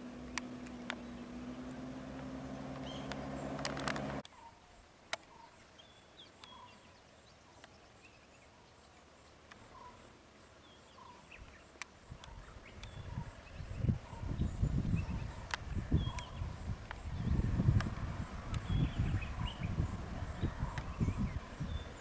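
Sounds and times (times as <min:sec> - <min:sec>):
vehicle engine idling: 0:00.0 - 0:04.2
bird chirping: 0:00.0 - 0:22.0.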